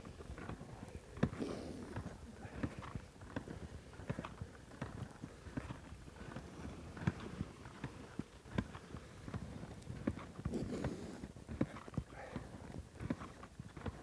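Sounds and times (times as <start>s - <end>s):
skis shuffling in snow: 0.0s - 14.0s
knocks and clicks of pole plants: 7.0s - 14.0s.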